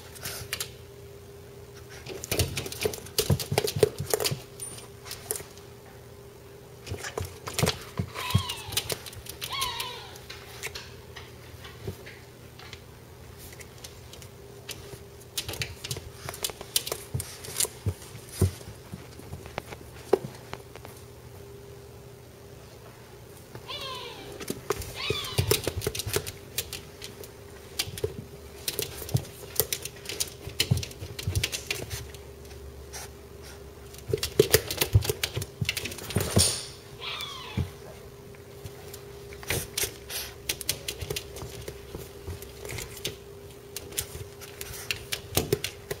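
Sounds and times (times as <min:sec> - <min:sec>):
puppy whining: 0:07.6 - 0:10.3, 0:23.6 - 0:26.2, 0:37.0 - 0:38.0.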